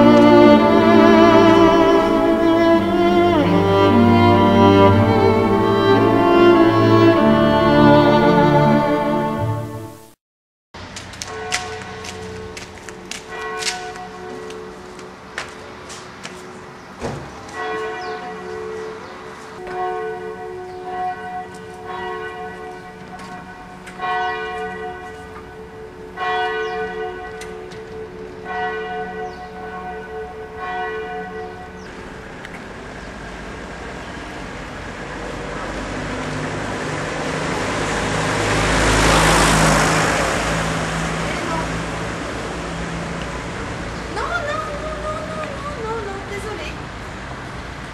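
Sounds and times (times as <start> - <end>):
church bells ringing: 0.0 - 10.0, 11.2 - 16.0, 17.4 - 32.3
car passing: 0.0 - 10.1, 31.6 - 47.9.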